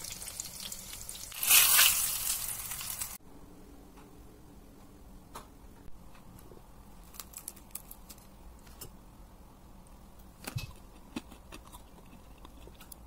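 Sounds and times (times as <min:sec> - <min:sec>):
fried batter crackling: 0:00.0 - 0:03.2.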